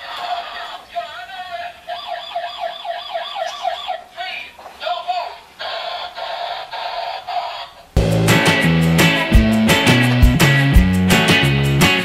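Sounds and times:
toy siren warbling: 0:01.9 - 0:04.2, 0:05.6 - 0:07.9.

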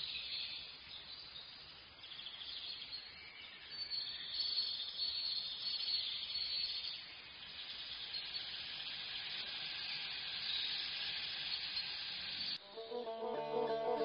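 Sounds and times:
broth simmering with a hiss: 0:00.0 - 0:14.0
music: 0:12.6 - 0:14.0.

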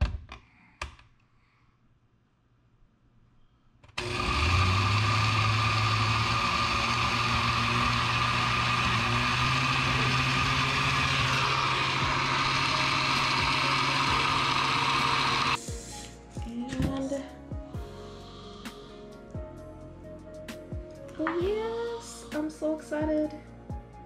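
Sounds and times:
blender motor running: 0:04.0 - 0:15.6.

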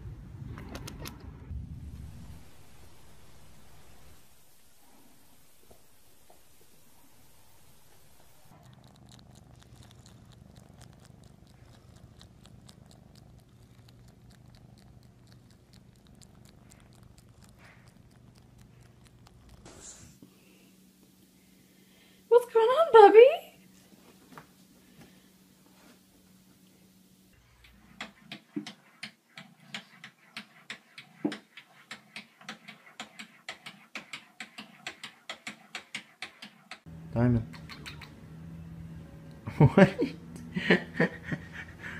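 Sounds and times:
cat purring: 0:00.5 - 0:20.2, 0:37.0 - 0:39.8
tongue licking cloth: 0:08.6 - 0:19.7
sharp clicking taps: 0:28.0 - 0:38.2.

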